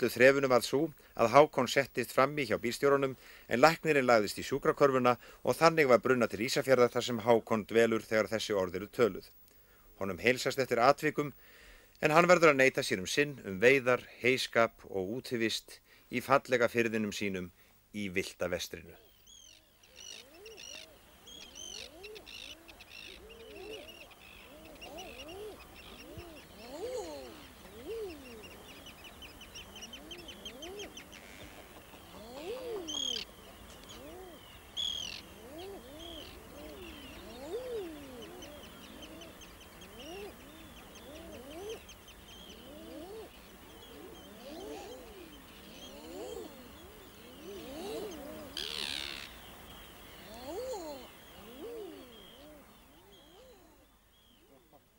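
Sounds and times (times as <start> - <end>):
birds cooing: 18.9 - 54.9
high bird chirps and trills: 19.1 - 54.5.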